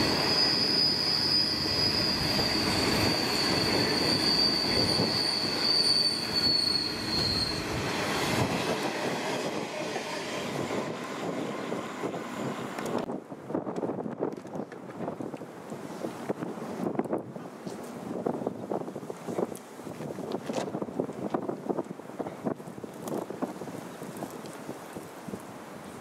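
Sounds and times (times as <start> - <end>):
train wheel squeal: 0.0 - 13.1
train wheels rumbling: 0.0 - 13.1.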